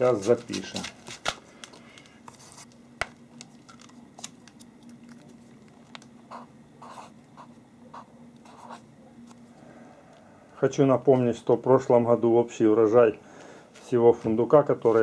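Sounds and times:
faint steady hum: 0.0 - 15.0
marker scratching on paper: 6.3 - 8.9.

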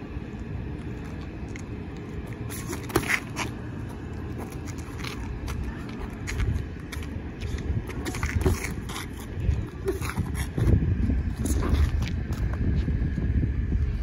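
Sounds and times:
low outdoor rumble: 0.0 - 14.0
sneakers scuffing on asphalt: 2.3 - 10.7.

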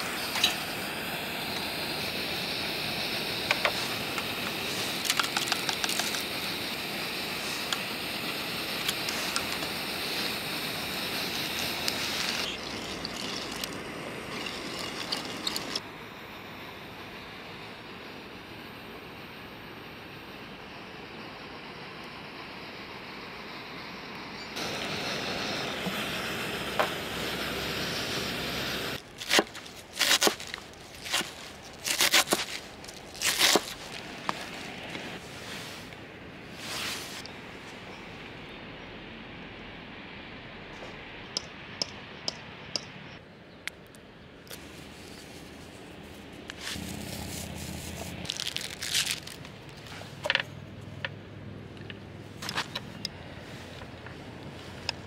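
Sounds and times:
objects clicking and knocking: 5.0 - 6.3
crinkling scraping handling noises: 8.7 - 9.8, 29.0 - 37.3, 44.5 - 50.6, 52.3 - 55.0.

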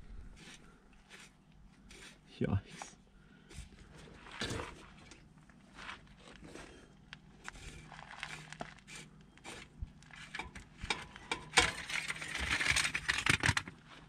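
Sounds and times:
scraping and rustling: 7.4 - 14.0.

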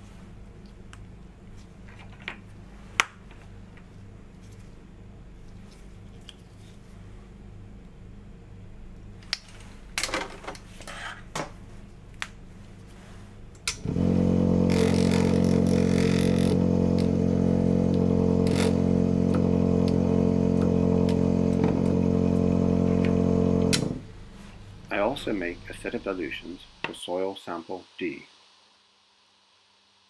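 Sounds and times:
vortex mixer running: 13.8 - 24.2.

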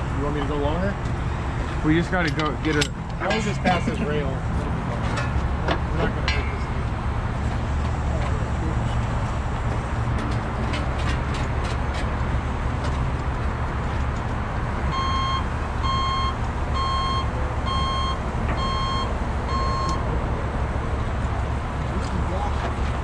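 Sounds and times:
backup alarm beeping: 14.9 - 20.1.

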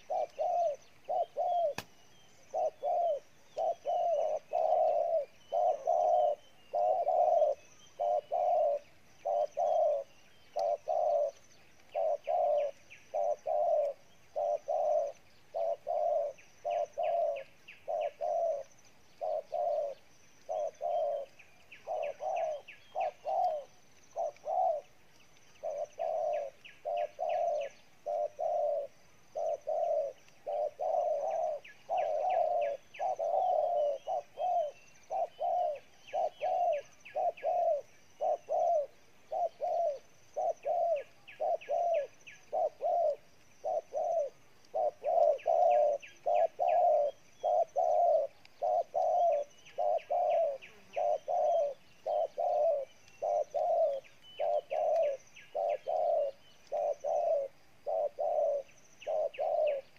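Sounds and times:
dove cooing: 0.0 - 59.9
small birds chirping: 0.0 - 59.9.

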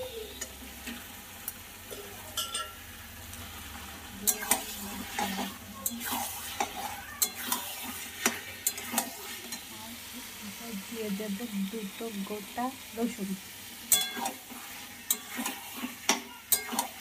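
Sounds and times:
frying sizzle: 0.0 - 17.0
spatula scraping metal pan: 4.2 - 9.7, 13.9 - 17.0.

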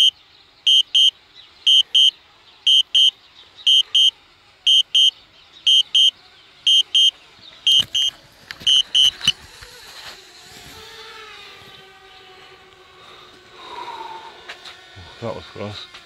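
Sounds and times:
high electronic beeps in pairs: 0.7 - 1.1, 1.7 - 2.1, 2.7 - 3.1, 3.7 - 4.1, 4.7 - 5.1, 5.7 - 6.1, 6.7 - 7.1, 7.7 - 8.1, 8.7 - 9.3.

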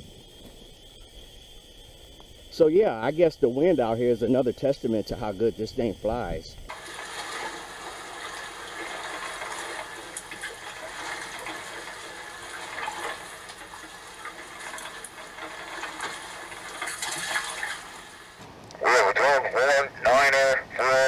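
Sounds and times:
water lapping and splashing: 6.7 - 18.5.

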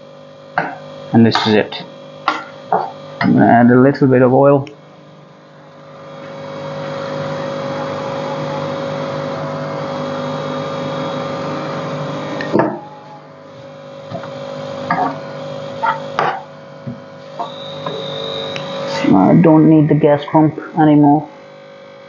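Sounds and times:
gas booster pump humming: 0.0 - 22.0.

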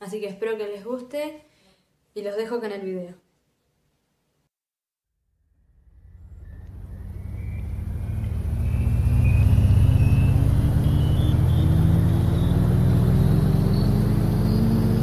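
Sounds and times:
car road and engine rumble: 5.5 - 15.0.

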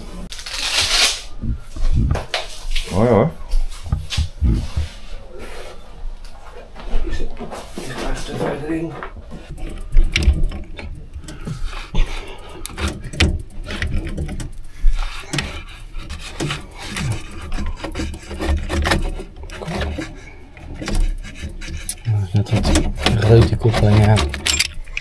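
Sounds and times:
rubbing and scraping: 0.0 - 5.8, 7.4 - 25.0
scattered knocks and clicks: 8.4 - 25.0.

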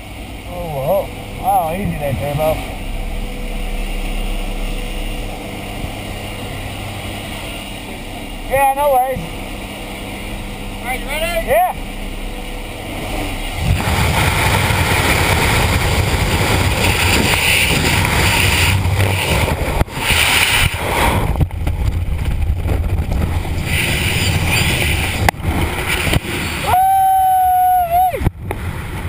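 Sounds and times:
wind buffeting microphone: 11.6 - 26.7.

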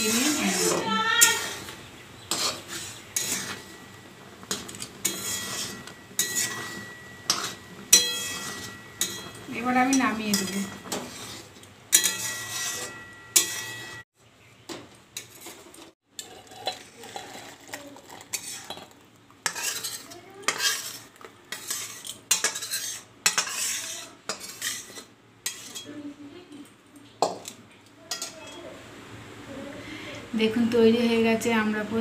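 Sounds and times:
metal spatula clanking on pot: 0.0 - 14.0, 18.3 - 25.9, 27.2 - 28.6
spatula scraping metal pot: 0.0 - 14.0, 15.2 - 25.9.

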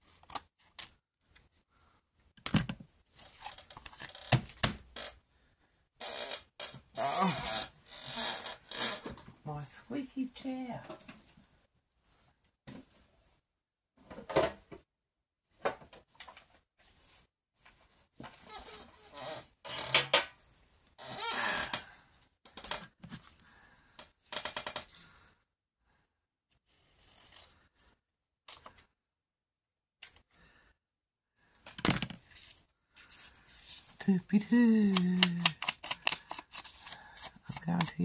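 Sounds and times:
paper rustling and crinkling: 32.1 - 34.0, 35.2 - 37.6.

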